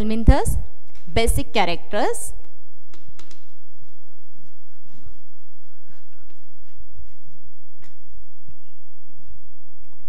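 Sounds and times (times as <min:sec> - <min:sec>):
chalk writing on chalkboard: 0:03.7 - 0:07.4.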